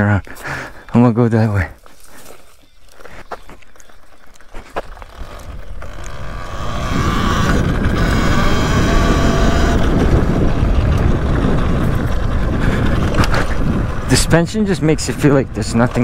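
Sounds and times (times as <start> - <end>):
ride rumble: 0.0 - 16.0
electric motor whine: 4.8 - 12.4
wind rushing over microphone: 5.0 - 16.0.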